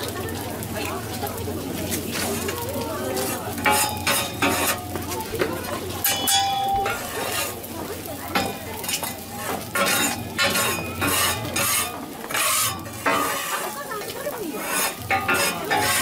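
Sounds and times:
food sizzling on griddle: 0.0s - 16.0s
metal spatulas scraping hot plate: 1.8s - 2.6s, 3.2s - 5.0s, 5.7s - 16.0s.

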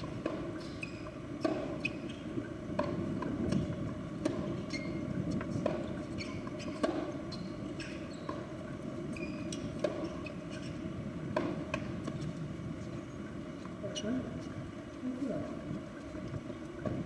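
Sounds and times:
low court ambience hum: 0.0s - 17.0s
shoe squeaks: 0.6s - 2.4s, 4.5s - 10.8s
tennis ball knocks: 11.3s - 12.2s.

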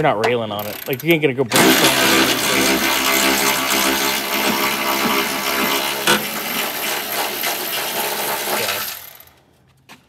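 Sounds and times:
power tool motor running: 1.5s - 9.3s.

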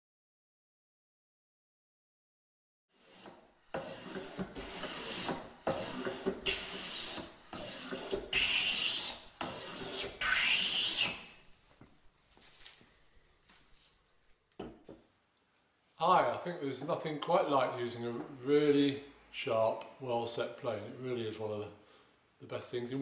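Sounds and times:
hand plane cutting wood: 3.0s - 11.4s.

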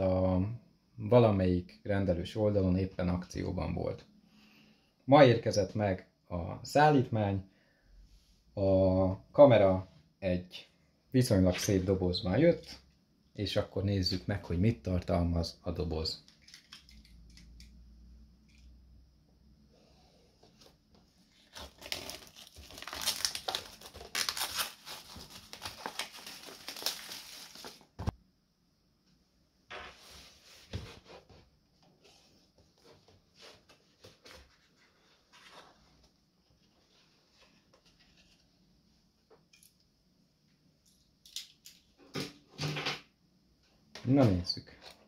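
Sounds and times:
plastic wrap crinkling and tearing: 21.4s - 28.1s.

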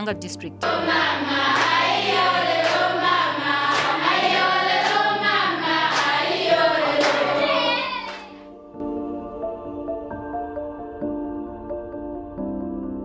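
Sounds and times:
soft instrumental music: 0.0s - 13.0s
group singing: 0.6s - 8.5s
hand clapping: 1.5s - 3.1s, 3.7s - 5.2s, 5.8s - 8.4s.

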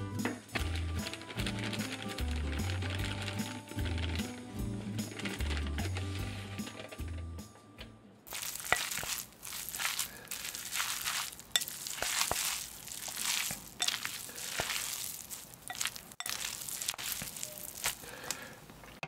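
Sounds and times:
slurping noodles: 8.3s - 18.4s
chewing: 8.3s - 18.6s.

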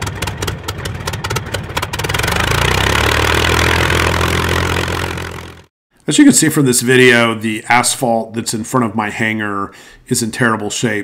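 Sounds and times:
engine picking up speed: 0.0s - 5.7s.

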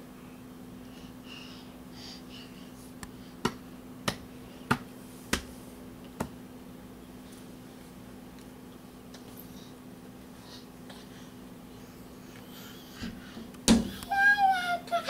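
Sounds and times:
hand slapping a hard surface: 3.0s - 5.5s.

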